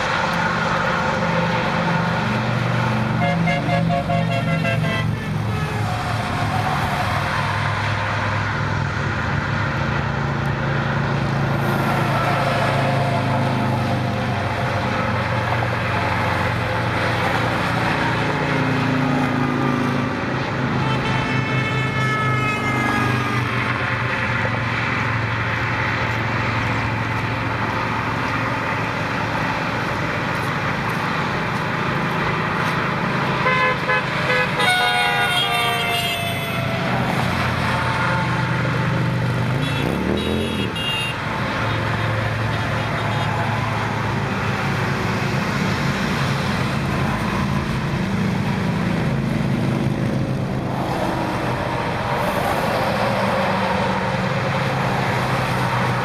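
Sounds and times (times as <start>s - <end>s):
traffic passing: 0.0s - 56.0s
vehicle horn: 3.2s - 5.8s, 20.8s - 23.3s, 33.4s - 37.0s, 39.6s - 41.8s.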